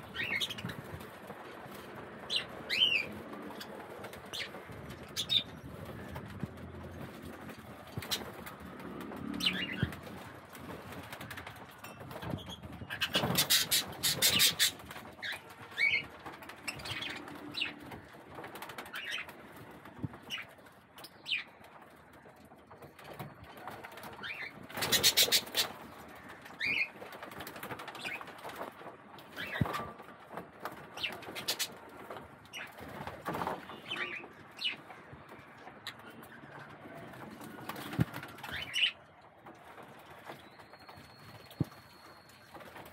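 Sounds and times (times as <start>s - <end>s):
wing fluttering and splashing: 0.1s - 20.4s, 23.4s - 29.9s.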